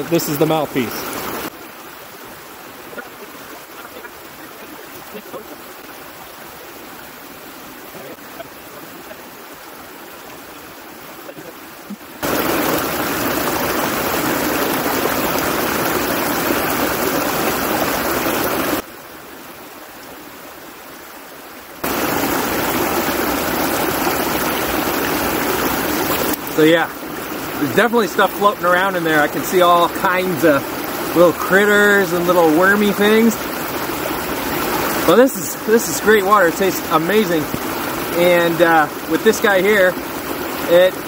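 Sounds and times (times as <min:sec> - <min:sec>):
stream running: 0:00.0 - 0:41.0.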